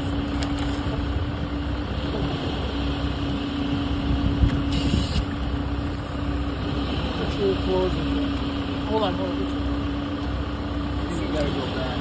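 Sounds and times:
engine humming steadily: 0.0 - 12.0
brief hiss: 4.7 - 5.3.

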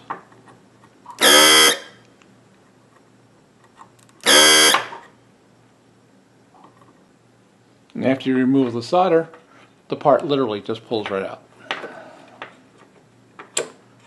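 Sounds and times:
desoldering vacuum pump buzzing: 1.2 - 2.1, 4.2 - 5.0.

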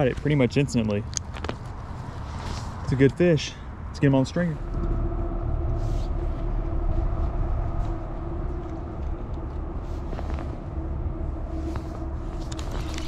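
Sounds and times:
steady mechanical drone: 4.2 - 13.0.

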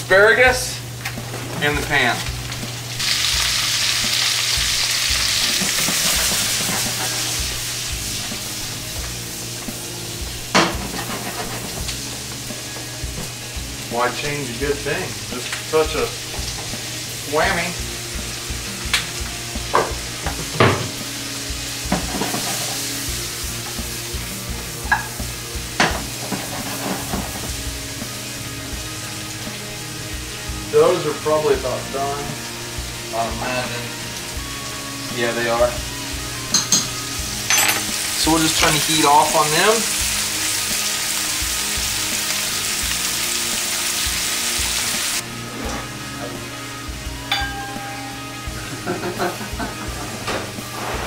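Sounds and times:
asparagus sizzling in skillet: 0.2 - 51.0
metal clinking against pan: 36.5 - 38.0, 47.3 - 48.5.

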